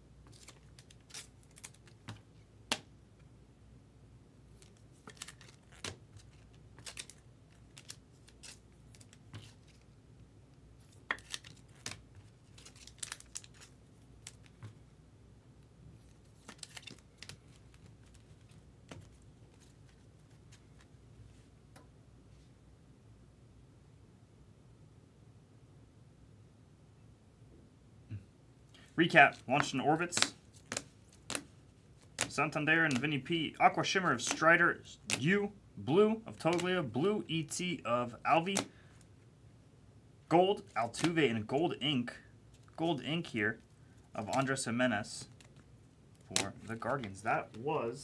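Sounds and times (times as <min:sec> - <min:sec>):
cards handled and clicking: 0:00.2 - 0:02.9, 0:04.6 - 0:09.9, 0:10.8 - 0:14.8, 0:16.0 - 0:20.9, 0:29.3 - 0:33.3, 0:34.0 - 0:35.4, 0:36.3 - 0:36.8, 0:38.4 - 0:39.1, 0:40.5 - 0:41.6, 0:42.5 - 0:47.6
plastic rustling: 0:10.8 - 0:14.7.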